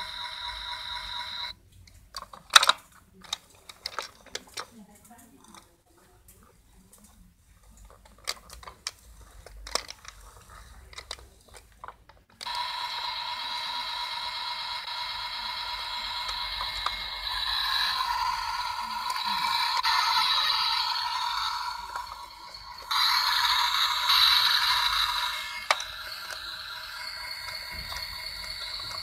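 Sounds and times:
toy electronic sound effect: 0.0 - 1.6, 12.4 - 29.0
plastic toy clicks and knocks: 2.0 - 5.7, 7.8 - 29.0.

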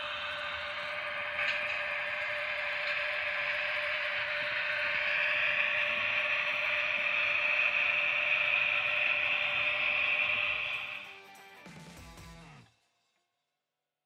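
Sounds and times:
wheels rolling over rails: 0.0 - 11.1
model train motor whirring: 0.0 - 11.2
steady whine: 0.0 - 11.7.

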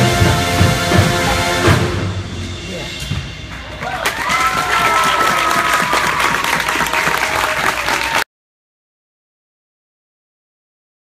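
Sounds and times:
crowd applauding: 3.5 - 8.3.

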